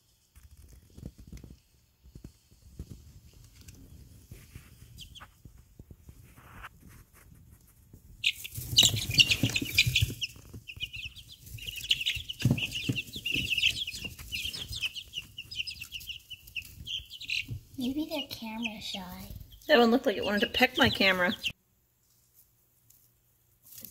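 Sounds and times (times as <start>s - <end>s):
chicks cheeping: 4.4s - 5.4s, 8.2s - 21.6s
dull thumps: 8.6s - 15.4s.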